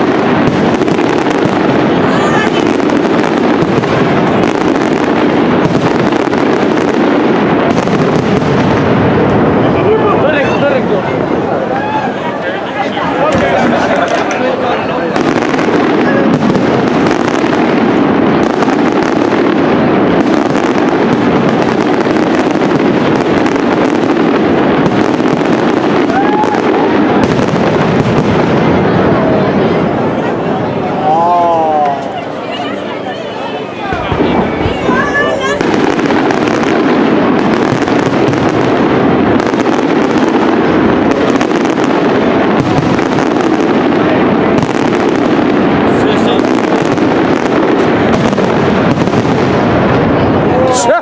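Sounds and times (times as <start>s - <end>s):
fireworks bursting: 0.0s - 51.0s.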